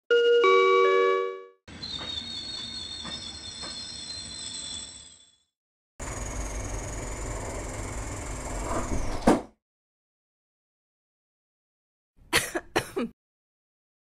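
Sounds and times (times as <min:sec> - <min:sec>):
railway station chime: 0:00.1 - 0:05.5
standing train high whine: 0:01.7 - 0:05.4
high brake squeal: 0:01.7 - 0:05.5
train wheel clacks: 0:01.9 - 0:04.1
sliding doors opening: 0:07.3 - 0:09.4.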